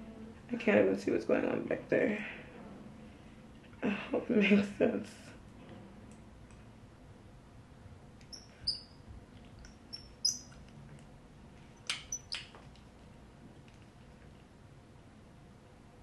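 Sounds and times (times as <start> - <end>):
curling iron clamp squeaks: 8.3 - 9.0, 11.8 - 12.5.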